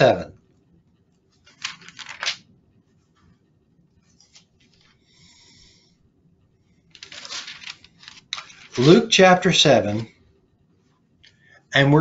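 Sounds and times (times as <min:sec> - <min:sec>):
rustling handling noises: 0:01.2 - 0:05.0, 0:06.8 - 0:10.2.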